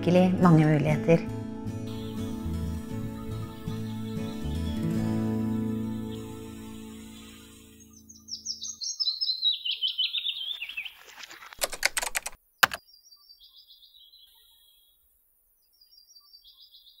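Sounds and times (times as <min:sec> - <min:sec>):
songbird singing descending chirps: 0:07.8 - 0:11.3, 0:12.8 - 0:15.0, 0:15.6 - 0:17.0
keyboard typing: 0:11.2 - 0:12.8.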